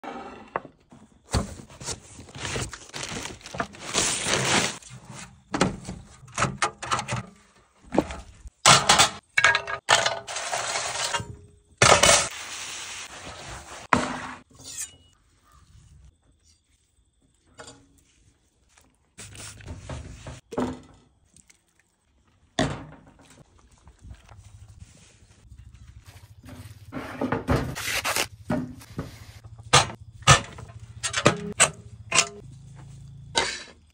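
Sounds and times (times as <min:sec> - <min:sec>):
cardboard and paper rustling: 0:01.2 - 0:06.2, 0:24.4 - 0:29.4.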